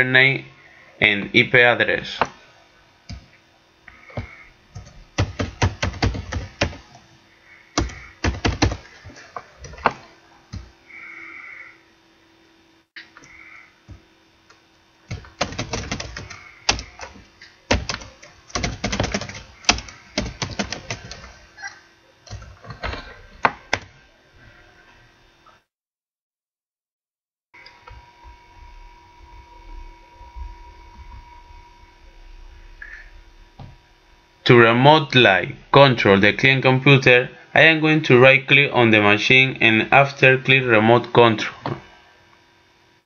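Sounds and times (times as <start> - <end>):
typing on computer keyboard: 4.8 - 6.9, 7.8 - 9.0, 15.1 - 21.3.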